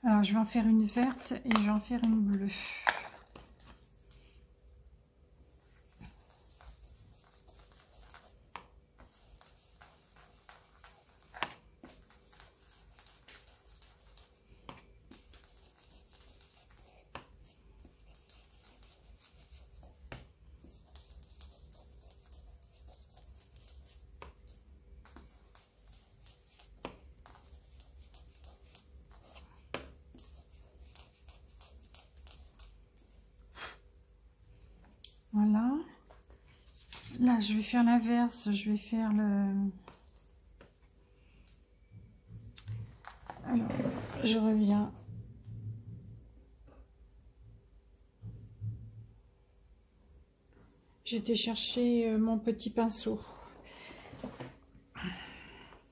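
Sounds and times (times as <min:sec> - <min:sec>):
sponge scuffing on paper: 0:05.5 - 0:33.9, 0:36.0 - 0:37.7.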